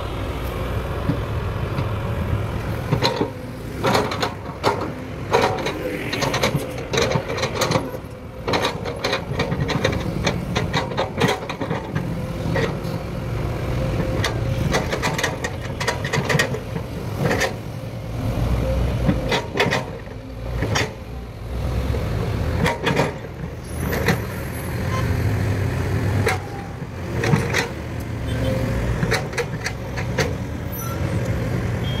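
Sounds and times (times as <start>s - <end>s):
diesel engines rumbling: 0.0s - 32.0s
sharp knocks and clatters: 2.9s - 12.8s, 22.6s - 24.2s, 27.2s - 27.8s, 29.0s - 30.5s.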